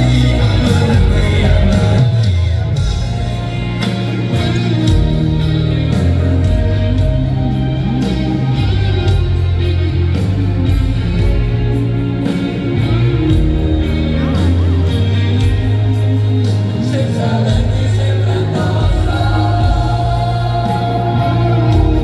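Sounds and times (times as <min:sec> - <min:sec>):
person singing: 0:00.0 - 0:09.5, 0:16.5 - 0:22.0
rock band playing live: 0:00.0 - 0:22.0.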